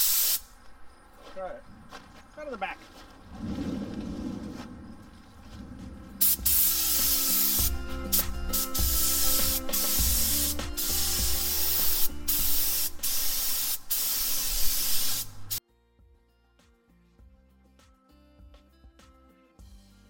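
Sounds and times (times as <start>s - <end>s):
paint spray gun hissing: 0.0s - 0.5s, 6.2s - 15.6s.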